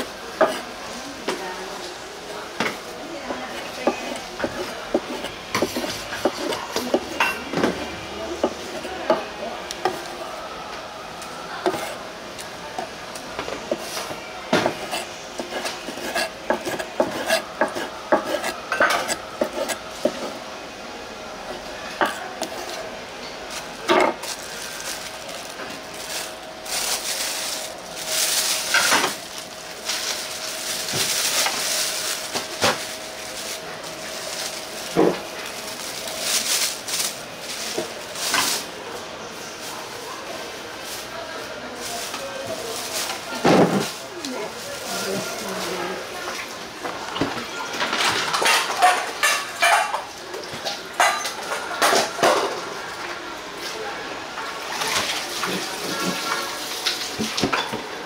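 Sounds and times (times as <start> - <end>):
utensils and dishes clattering: 2.6 - 10.1, 13.4 - 20.4, 21.5 - 38.7, 41.8 - 52.7, 54.4 - 57.9.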